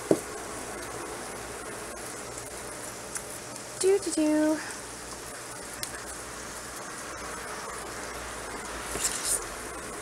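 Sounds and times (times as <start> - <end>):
meatballs sizzling in oil: 0.0 - 10.0.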